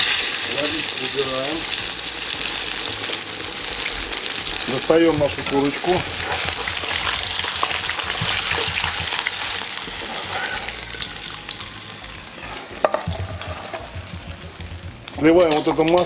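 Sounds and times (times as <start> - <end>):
chicken sizzling in oil: 0.0 - 16.0
sharp knock: 12.9 - 14.9.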